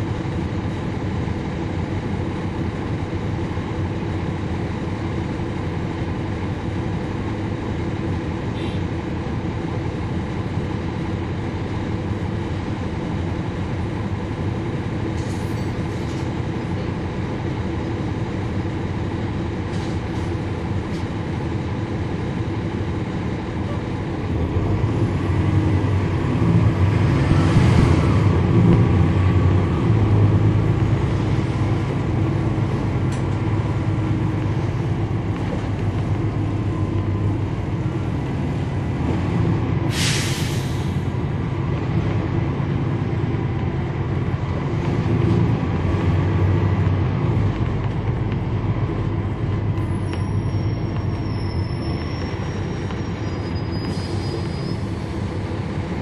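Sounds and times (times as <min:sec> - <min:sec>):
bus diesel engine under load: 0:00.0 - 0:56.0
sharp hiss of air: 0:39.9 - 0:41.1.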